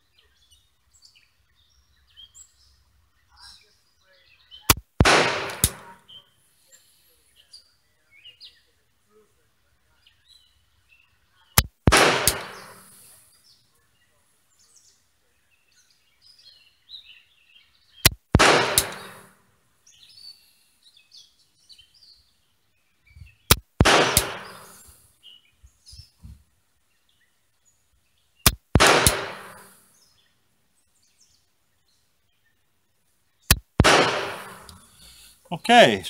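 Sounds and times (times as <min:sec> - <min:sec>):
birds chirping: 0:00.0 - 0:08.9, 0:09.9 - 0:36.0
revolver shots: 0:04.7 - 0:06.0, 0:11.6 - 0:12.8, 0:18.0 - 0:19.3, 0:23.5 - 0:24.8, 0:28.5 - 0:29.7, 0:33.5 - 0:34.7
gunshot echo rolling: 0:05.0 - 0:06.0, 0:11.9 - 0:12.9, 0:18.4 - 0:19.3, 0:23.8 - 0:24.8, 0:28.8 - 0:29.8, 0:33.8 - 0:34.8.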